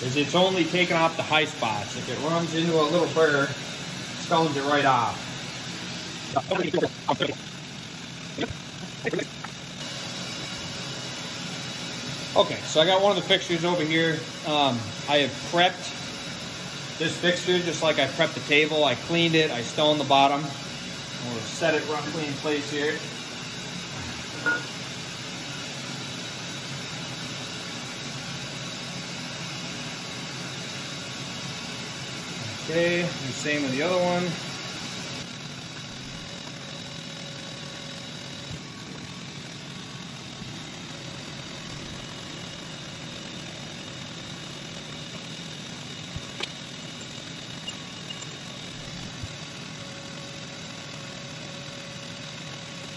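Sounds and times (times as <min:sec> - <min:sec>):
machine shop hiss: 0:00.0 - 0:07.4, 0:09.8 - 0:35.3.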